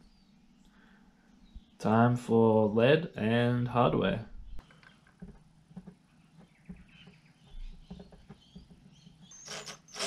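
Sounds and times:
wooden object clicking and tapping: 0:04.6 - 0:09.4.

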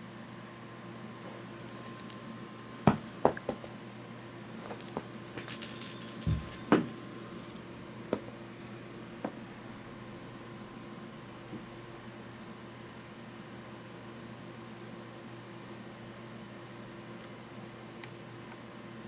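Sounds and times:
steady low hum: 0:00.0 - 0:19.0
cat toy jingling: 0:05.4 - 0:07.0.

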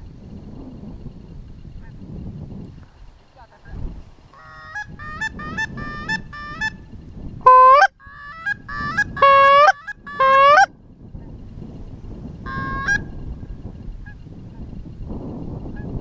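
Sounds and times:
geese honking: 0:04.4 - 0:06.8, 0:07.5 - 0:10.7, 0:12.5 - 0:13.1.

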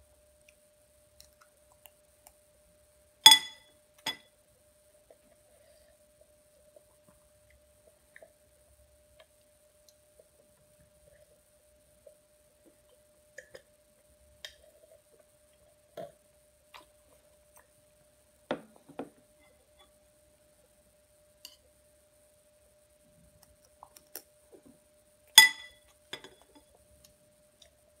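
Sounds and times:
faint steady hum: 0:00.0 - 0:28.0
metal spoon clinking on bowl: 0:03.3 - 0:04.2, 0:25.4 - 0:26.4.

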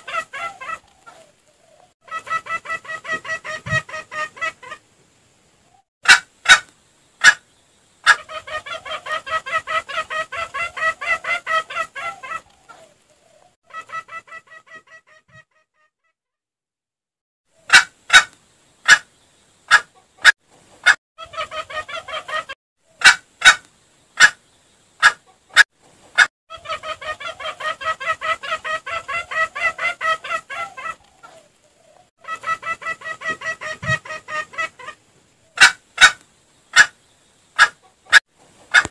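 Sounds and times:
junglefowl calls: 0:00.0 - 0:04.9, 0:05.6 - 0:15.9, 0:17.6 - 0:19.1, 0:19.7 - 0:24.4, 0:25.0 - 0:25.6, 0:26.2 - 0:37.0, 0:37.6 - 0:38.9
rapid clucking: 0:37.6 - 0:38.9.

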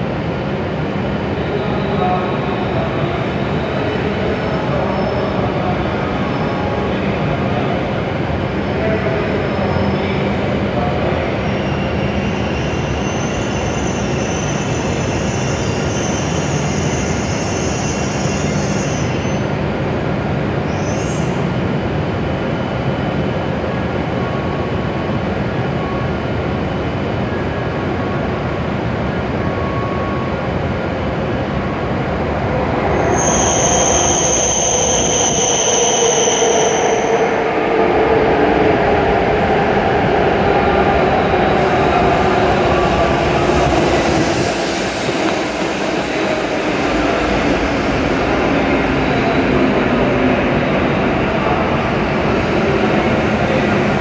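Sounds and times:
train brakes squealing: 0:11.3 - 0:19.6, 0:20.7 - 0:21.5, 0:29.4 - 0:30.4, 0:32.9 - 0:37.6
train rushing rumble: 0:26.4 - 0:54.0.

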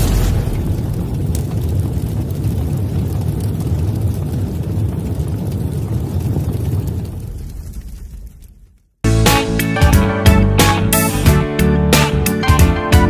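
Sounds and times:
low explosion rumble: 0:00.0 - 0:09.0.

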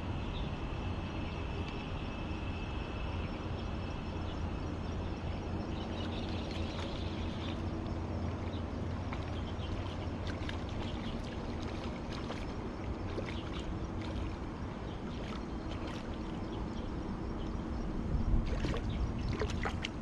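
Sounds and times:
steady low hum: 0:00.0 - 0:20.0
river water running: 0:04.0 - 0:20.0.

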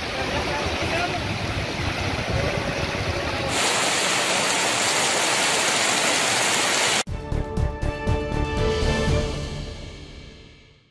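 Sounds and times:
heavy rain on a street: 0:00.0 - 0:07.1.

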